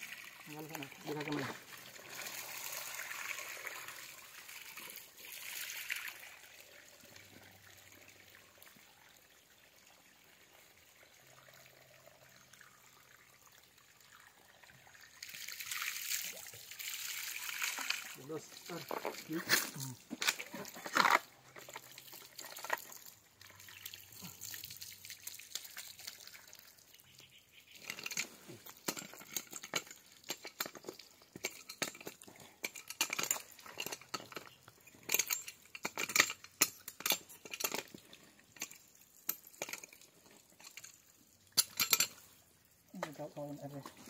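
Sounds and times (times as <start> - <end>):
water trickling: 0.0 - 44.0
wrench clicking and scraping: 27.8 - 37.9, 41.6 - 42.2.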